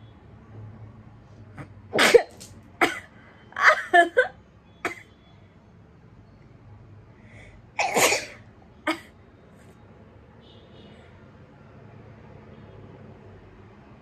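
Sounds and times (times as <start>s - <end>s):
woman sneezing and spluttering: 1.9s - 3.0s.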